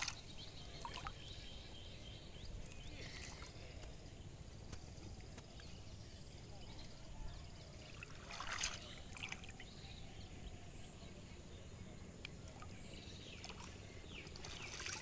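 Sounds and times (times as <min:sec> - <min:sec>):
water splashing and trickling: 0:00.0 - 0:01.8, 0:02.5 - 0:05.8, 0:06.6 - 0:09.9, 0:12.3 - 0:15.0.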